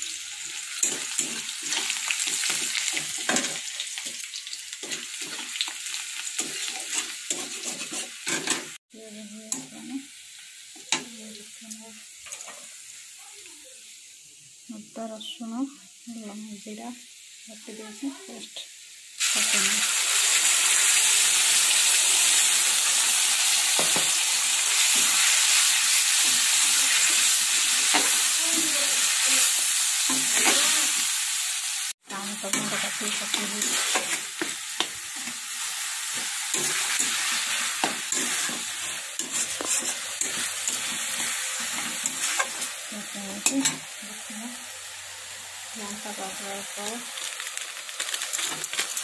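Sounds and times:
paste sizzling in hot oil: 0.0 - 49.0
tomatoes frying: 0.0 - 49.0
metal spatula scraping pan: 0.8 - 4.2, 6.4 - 8.8, 32.1 - 42.7.

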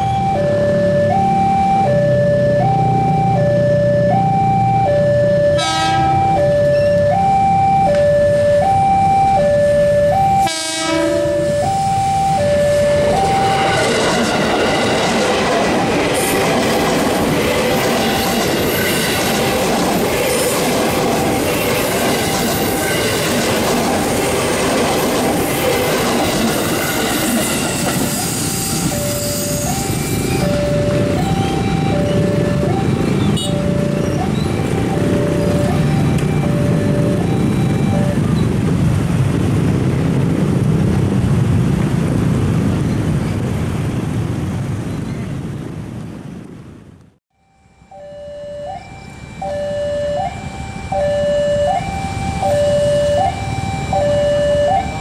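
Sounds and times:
level crossing alarm ding-dong: 0.0 - 13.9, 28.8 - 38.3, 47.4 - 55.0
train wheel and rail noise: 0.0 - 55.0
train horn toots: 5.5 - 6.3, 10.4 - 12.2, 27.6 - 34.8, 47.8 - 54.1.

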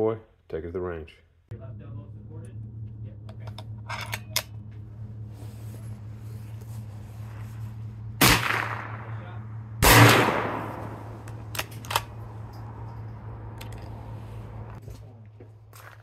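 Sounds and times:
echoing rifle shots: 8.2 - 12.3
rifle bolt action clicks: 11.2 - 12.2.

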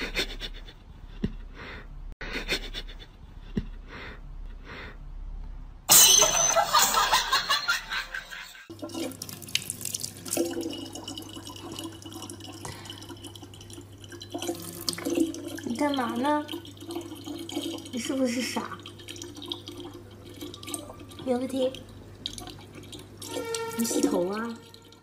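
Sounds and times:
tap water running into bottle: 8.7 - 25.0.

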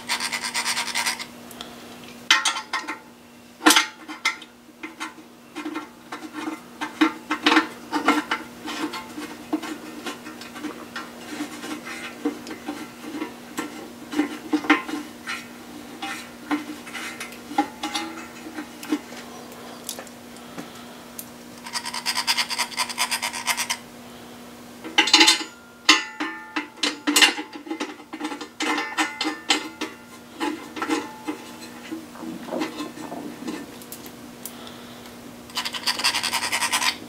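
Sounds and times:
hand ratchet clicking rapidly: 0.0 - 1.2, 21.6 - 23.8, 35.5 - 37.0
steady low hum: 0.0 - 37.0.

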